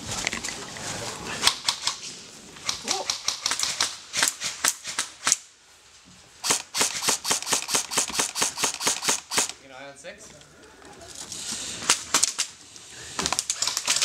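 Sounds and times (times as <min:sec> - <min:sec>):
airsoft guns firing: 0:06.4 - 0:09.6.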